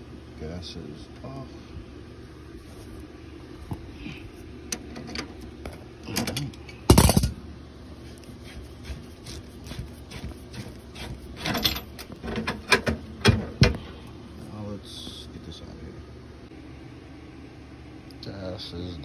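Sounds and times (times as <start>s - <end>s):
steady low hum: 0.0s - 19.0s
metal tools clicking and scraping: 4.7s - 7.3s, 10.6s - 12.9s.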